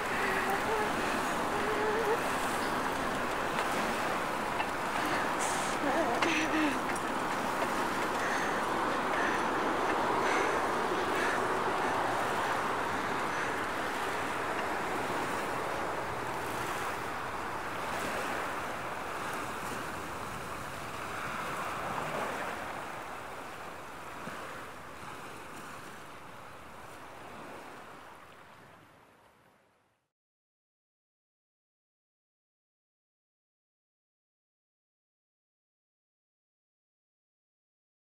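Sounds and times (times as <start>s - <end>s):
sea surf: 0.0s - 29.7s
wind: 0.0s - 30.1s.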